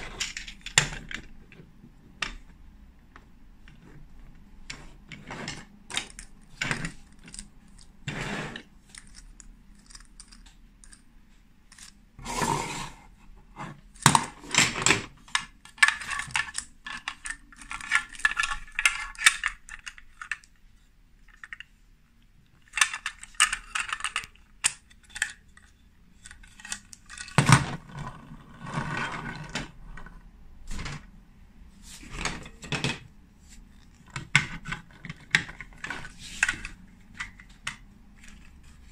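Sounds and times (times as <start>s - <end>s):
plastic toy bricks clicking and rattling: 0.0s - 1.4s, 4.7s - 11.1s, 11.7s - 12.0s, 13.9s - 21.8s, 22.5s - 30.1s, 33.7s - 38.9s.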